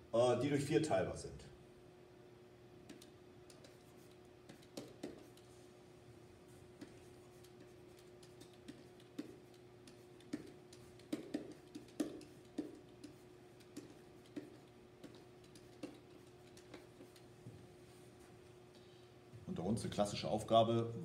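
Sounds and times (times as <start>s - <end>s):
steady low hum: 0.0s - 21.0s
pen tip tapping on whiteboard: 4.4s - 5.4s, 6.8s - 17.3s.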